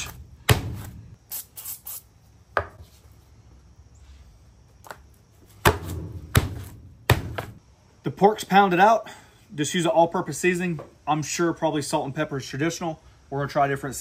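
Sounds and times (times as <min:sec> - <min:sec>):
meat mallet thudding on board: 0:00.4 - 0:01.0, 0:05.6 - 0:07.6.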